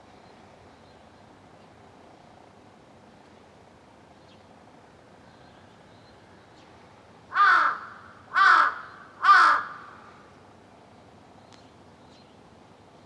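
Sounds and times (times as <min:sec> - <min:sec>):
crow cawing: 0:07.3 - 0:10.1.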